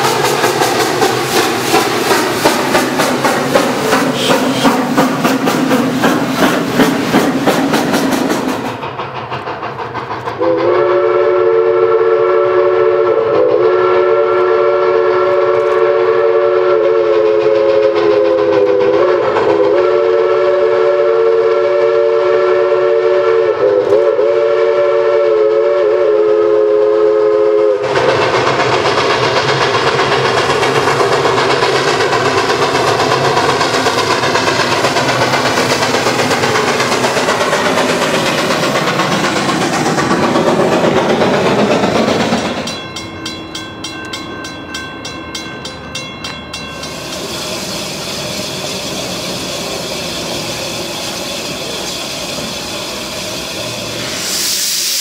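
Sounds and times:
wheels clacking over rails: 0.0 - 11.1, 27.8 - 52.5
steam locomotive working: 0.0 - 55.0
chime steam whistle: 1.5 - 5.2, 10.4 - 55.0.

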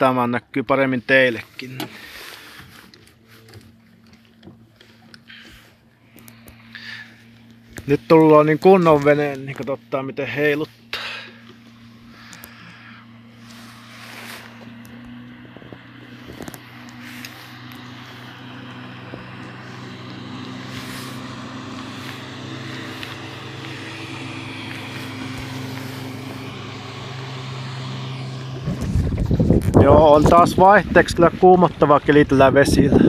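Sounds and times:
boat motor humming: 0.0 - 33.0
wind: 0.0 - 33.0
water rushing: 10.4 - 32.6.

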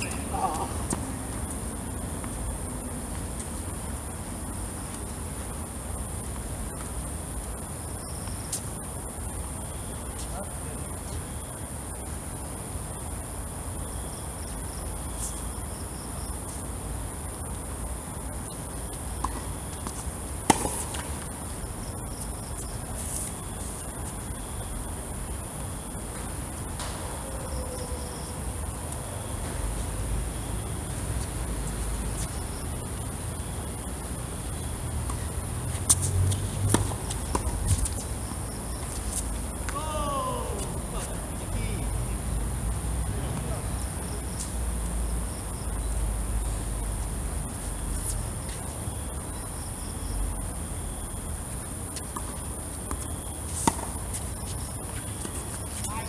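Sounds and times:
insects chirring: 0.0 - 56.0
racket striking tennis ball: 19.2 - 21.2, 53.6 - 54.0
rackets striking tennis ball: 20.4 - 21.2.

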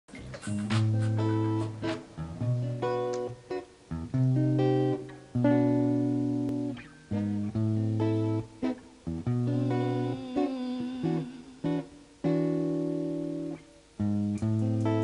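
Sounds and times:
guitar chords ringing: 0.2 - 15.0.

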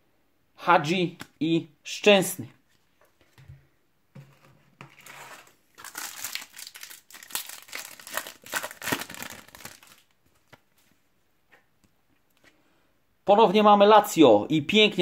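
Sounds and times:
plastic wrapper crinkling and tearing: 5.0 - 10.6.

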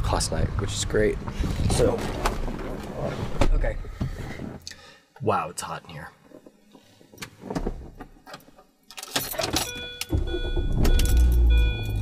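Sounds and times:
car engine starting and idling: 10.1 - 12.0.

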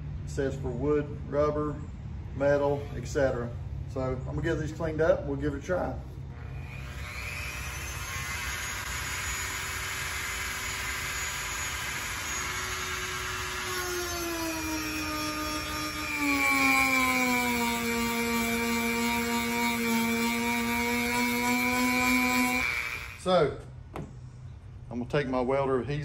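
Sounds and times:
rotary tool whine: 6.3 - 23.5.

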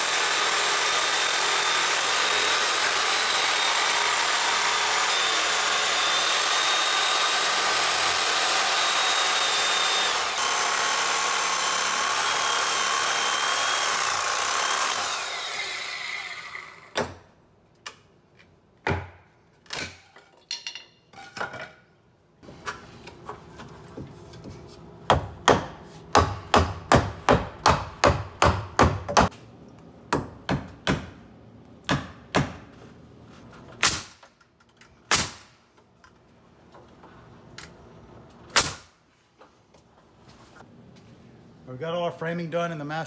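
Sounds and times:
hammer driving nails into wood: 25.1 - 29.3.

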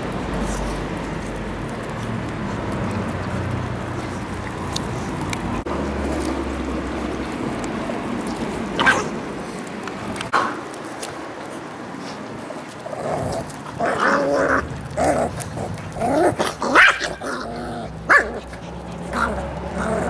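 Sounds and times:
puppies growling: 0.0 - 10.2, 12.2 - 20.0.

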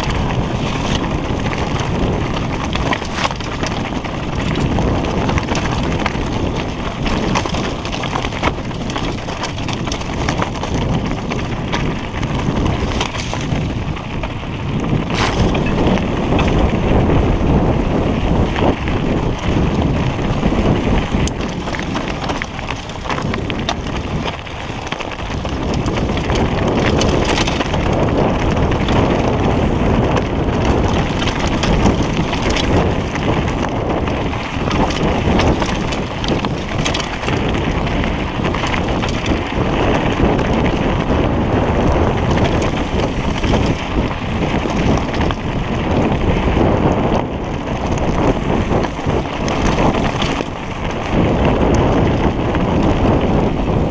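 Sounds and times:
bike clattering over stones: 0.0 - 53.9.

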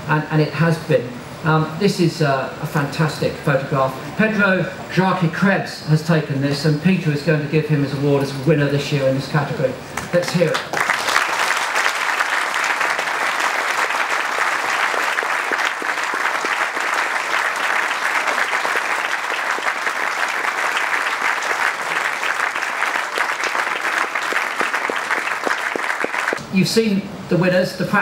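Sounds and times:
audience clapping: 10.0 - 26.4.

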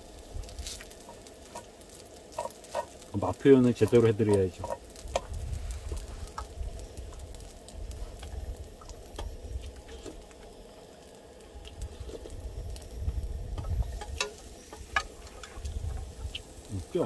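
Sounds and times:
low uneven rumble: 0.0 - 17.0.

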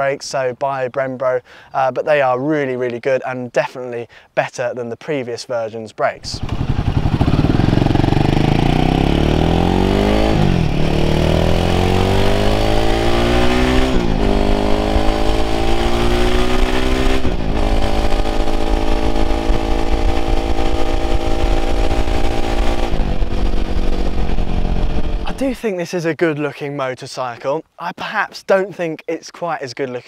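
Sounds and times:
motorcycle engine accelerating: 6.2 - 25.5.

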